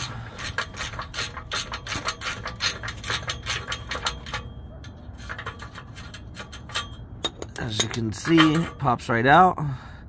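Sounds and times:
ratchet wrench clicking: 0.0s - 4.5s.

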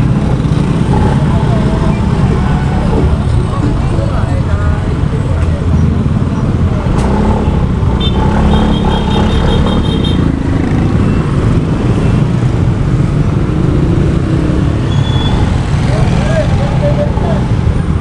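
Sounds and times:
traffic: 0.0s - 18.0s
wind and road rumble: 0.0s - 18.0s.

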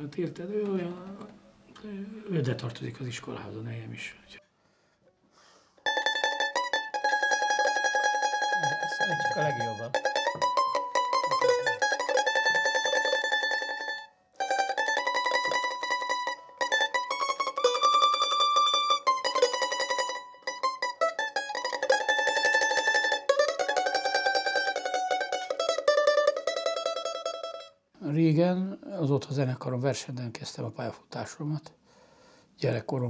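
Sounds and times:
tambura tremolo picking: 5.8s - 27.8s.

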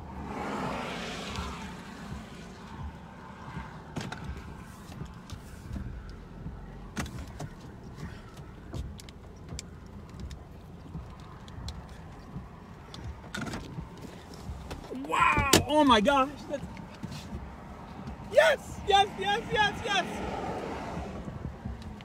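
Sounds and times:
vehicle rumble inside cab: 0.0s - 22.0s
light clicks and knocks: 1.4s - 18.3s, 21.2s - 22.0s.

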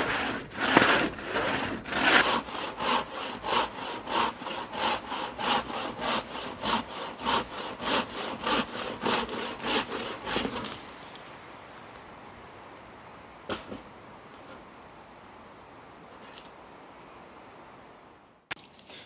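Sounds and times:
crosscut saw rasping through log: 0.0s - 10.8s.

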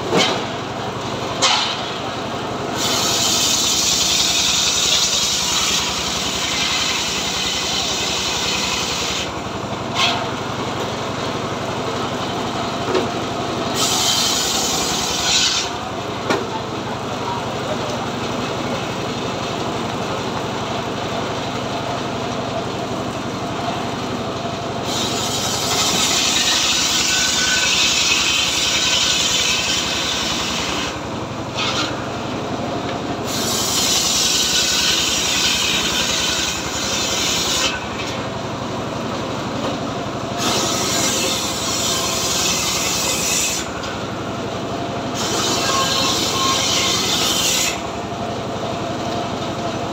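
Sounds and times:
engine running steadily: 0.0s - 49.9s
saw blade cutting log: 0.1s - 0.6s, 1.4s - 2.1s, 2.7s - 10.4s, 13.7s - 16.5s, 24.8s - 32.2s, 33.2s - 38.2s, 40.4s - 44.0s, 45.1s - 48.0s.

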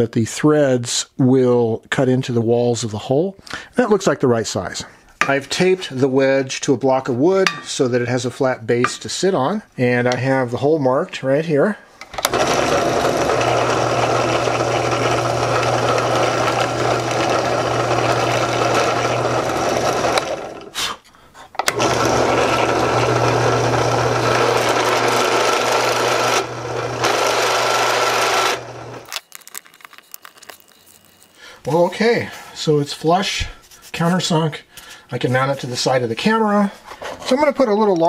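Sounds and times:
drill bit cutting wood: 12.2s - 20.7s, 21.7s - 29.1s
drill press motor running: 12.2s - 20.7s, 21.6s - 29.1s.

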